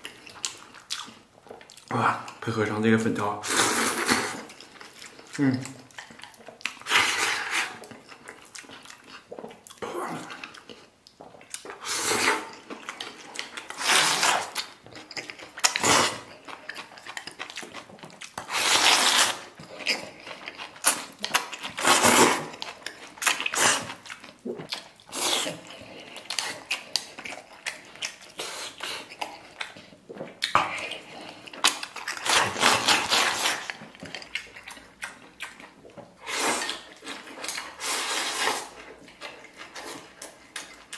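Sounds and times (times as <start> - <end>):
chewing: 0.0 - 2.6, 3.8 - 40.9
slurping noodles: 3.4 - 4.6, 11.7 - 14.7, 15.6 - 16.3, 18.4 - 20.3, 21.6 - 22.6, 23.2 - 24.0, 25.0 - 27.1, 36.2 - 38.9.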